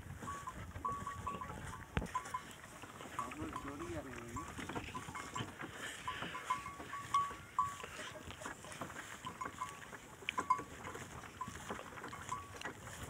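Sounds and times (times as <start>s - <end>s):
wooden cart squeaking: 0.0s - 13.0s
cart clicks and knocks: 3.2s - 9.7s.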